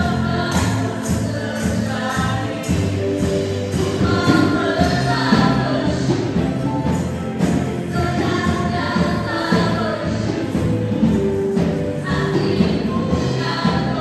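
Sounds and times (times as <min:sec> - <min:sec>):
keyboard guitar and bass: 0:00.0 - 0:14.0
tambourines jingling: 0:00.0 - 0:14.0
women singing a worship song: 0:00.0 - 0:14.0.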